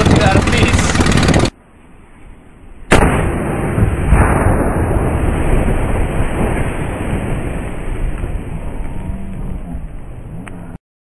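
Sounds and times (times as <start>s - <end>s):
tank bursting blast: 0.0s - 1.5s, 2.9s - 8.8s.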